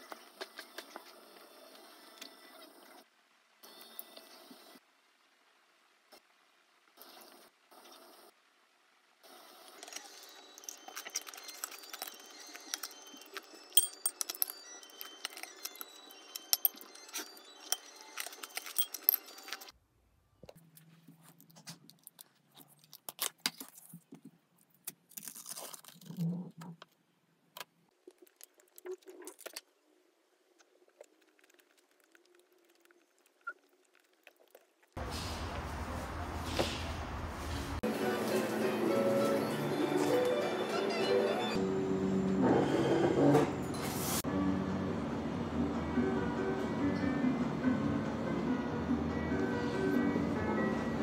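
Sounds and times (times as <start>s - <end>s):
metal spoon clinking against bowl: 13.8s - 14.5s.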